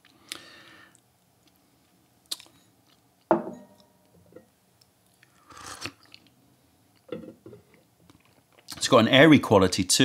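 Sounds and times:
ceramic cup knocking and ringing: 3.3s - 3.8s
slurping tea: 5.4s - 6.1s.

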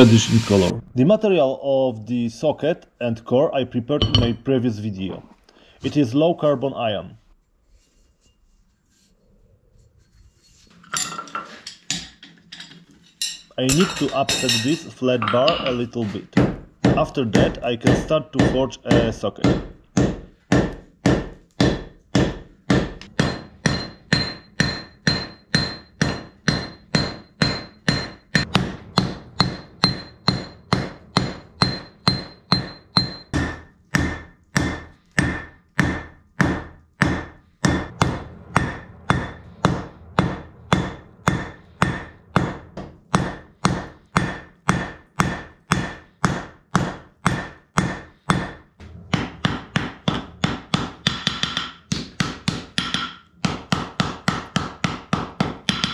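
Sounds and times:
hammer striking iron on anvil: 4.0s - 4.4s, 16.4s - 55.9s
metallic anvil ring: 4.0s - 4.4s, 10.8s - 15.9s, 23.2s - 33.7s.

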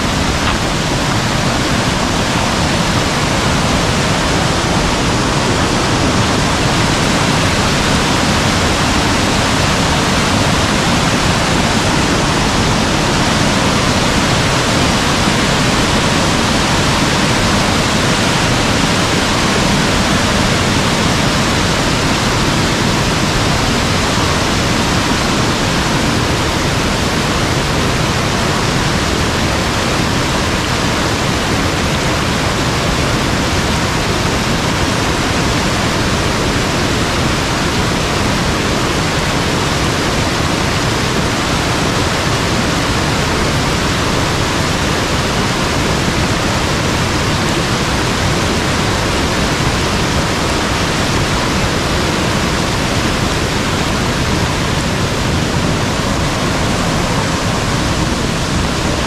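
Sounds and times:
stream rushing loudly: 0.0s - 59.0s.

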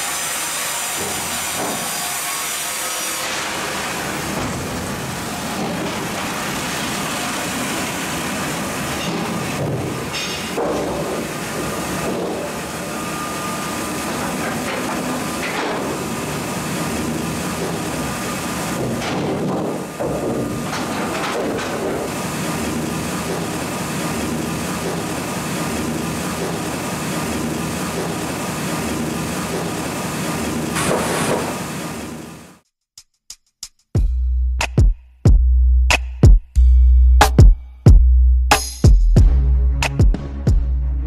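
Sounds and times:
sawmill machinery running: 0.0s - 32.6s.

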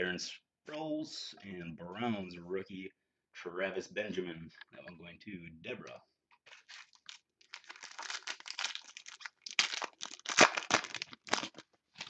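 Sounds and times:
foil wrapper tearing: 6.5s - 11.7s.

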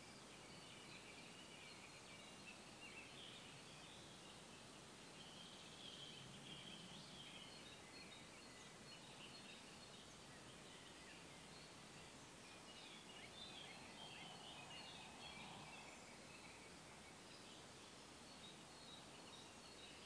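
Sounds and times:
background hiss: 0.0s - 20.0s
birds chirping: 0.5s - 20.0s.

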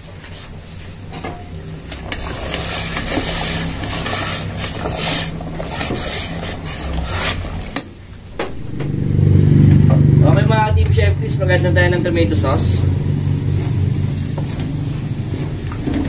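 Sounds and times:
water boiling in a pot: 0.0s - 8.8s, 12.4s - 16.0s
low steady hum: 0.0s - 16.0s
metal spoon scraping a pot: 2.0s - 7.8s.

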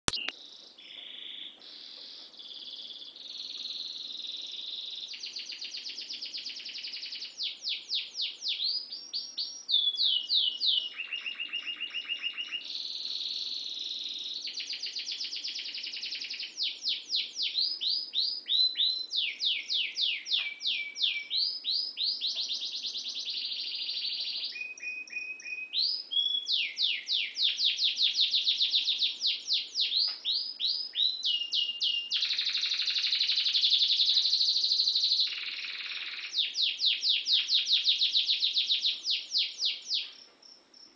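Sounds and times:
canary singing: 0.0s - 40.2s.

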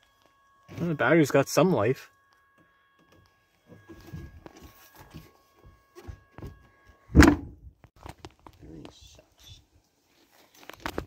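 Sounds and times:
faint steady high tone: 0.0s - 7.7s.

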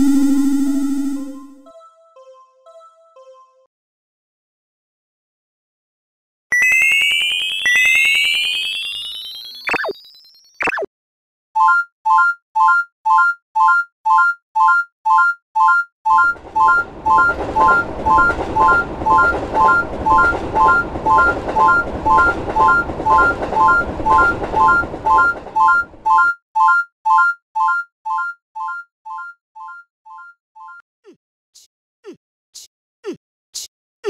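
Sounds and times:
railroad crossing bell ringing: 16.2s - 26.0s
train passing: 16.2s - 26.0s.

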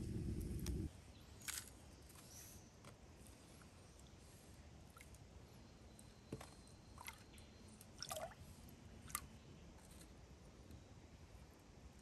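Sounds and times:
water drips and plops: 8.0s - 8.4s.

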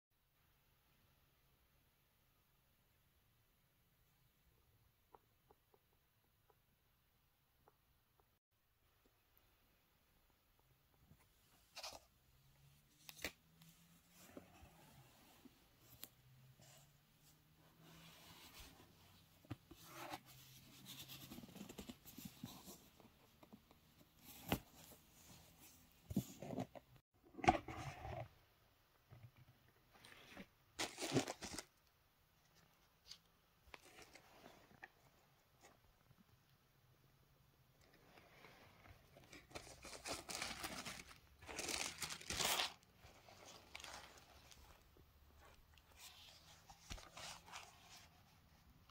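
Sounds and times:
tissue paper rustling and crinkling: 30.8s - 31.7s, 39.4s - 44.8s.

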